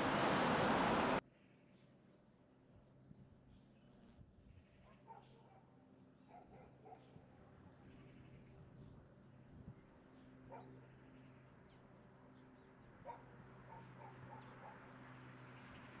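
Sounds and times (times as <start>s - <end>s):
dog barking faintly: 4.8s - 7.3s, 13.0s - 14.8s.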